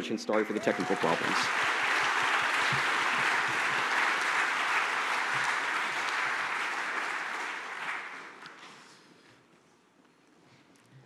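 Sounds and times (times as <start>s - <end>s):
audience applauding: 0.3s - 8.9s.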